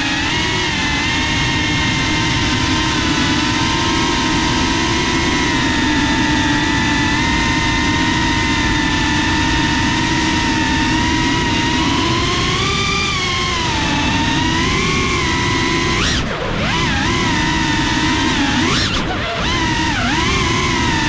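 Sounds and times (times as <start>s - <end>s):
drone propellers whining: 0.0s - 21.0s.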